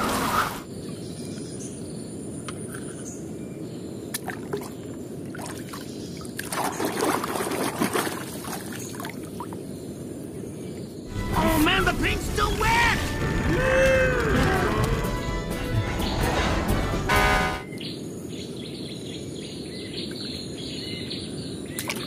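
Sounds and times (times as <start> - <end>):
water sloshing and splashing: 4.1 - 9.6
steady low rush: 11.1 - 17.7.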